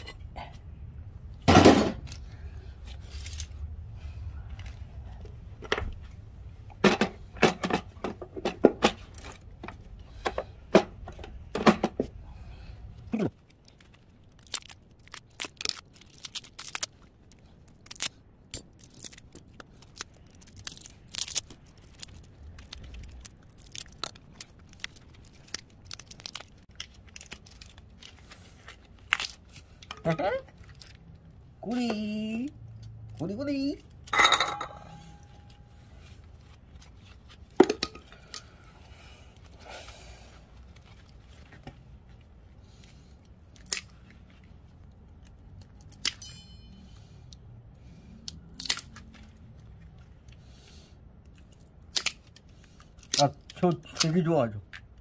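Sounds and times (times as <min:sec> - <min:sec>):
metal plates clinking: 0:34.1 - 0:35.5.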